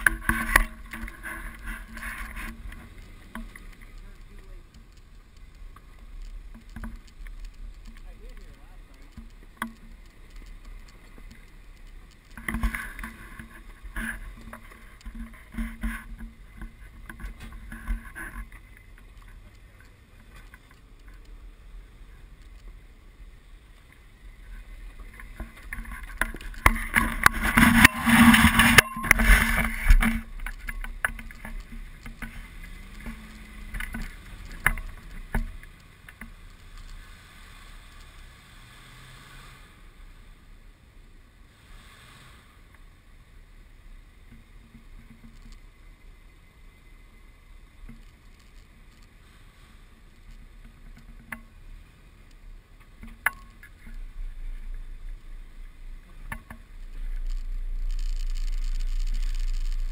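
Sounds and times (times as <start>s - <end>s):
off-road vehicle engine: 0.0s - 59.9s
wind buffeting camera: 24.1s - 37.0s.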